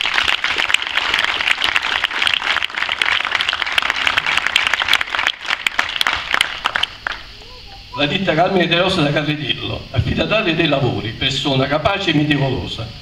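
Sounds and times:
crowd applauding: 0.0s - 7.3s.

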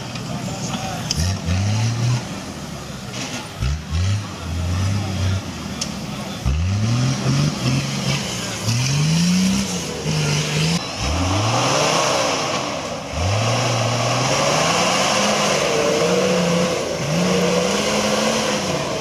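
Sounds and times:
engine revving hard: 1.1s - 2.3s, 6.4s - 19.0s.

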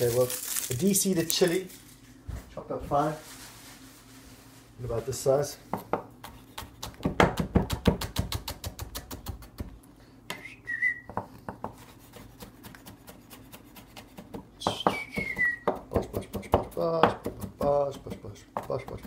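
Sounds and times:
knife chopping on wooden board: 5.7s - 9.8s, 11.1s - 19.0s
whistled note: 10.3s - 11.1s.

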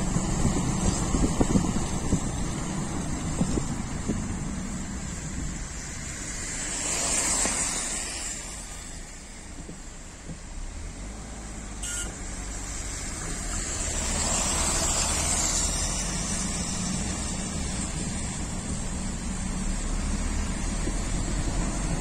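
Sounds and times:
traffic engine rumble: 0.0s - 22.0s
tyre hiss on wet road: 0.0s - 22.0s.

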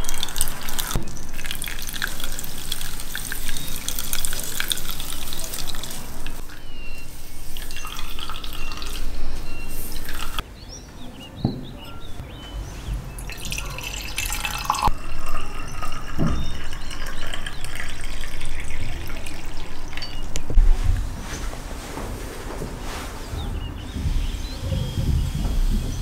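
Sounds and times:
juice dripping through sieve: 0.0s - 10.4s, 13.2s - 20.6s.

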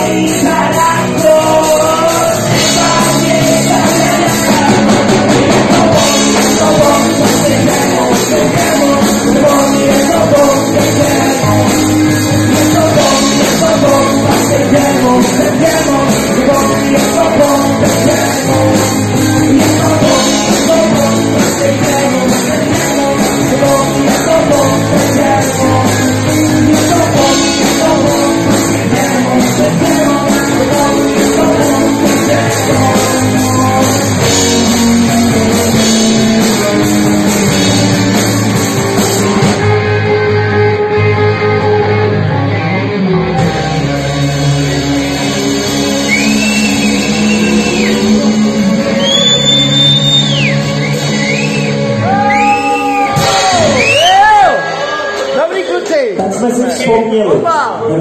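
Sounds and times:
man singing: 0.0s - 38.4s, 45.7s - 50.5s
drums: 0.0s - 58.0s
electric guitars: 0.0s - 58.0s
live rock band playing: 0.0s - 58.0s.

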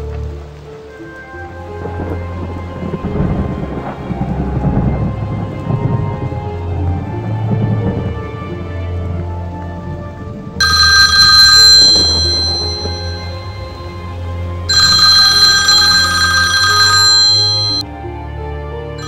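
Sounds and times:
low music score: 0.0s - 10.6s, 13.0s - 14.7s, 17.8s - 19.0s
telephone electronic ring: 10.6s - 14.1s, 14.7s - 17.8s.

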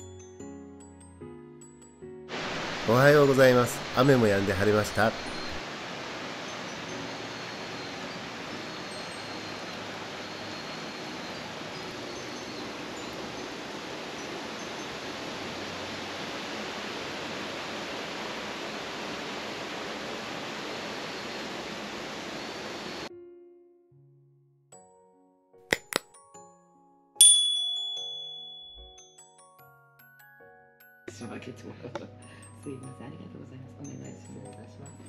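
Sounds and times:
mountain stream rushing: 2.3s - 23.1s.

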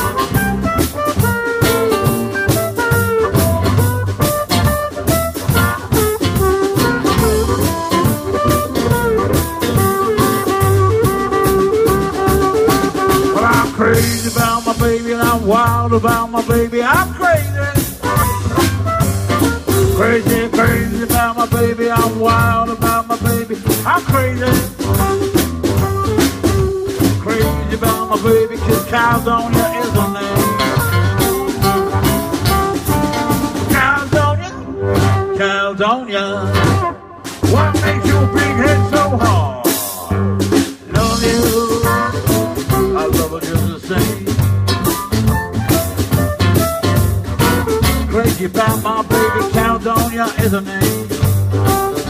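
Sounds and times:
amplified harmonica solo: 0.0s - 13.6s, 24.8s - 27.3s, 28.9s - 33.7s
blues band playing: 0.0s - 52.0s.

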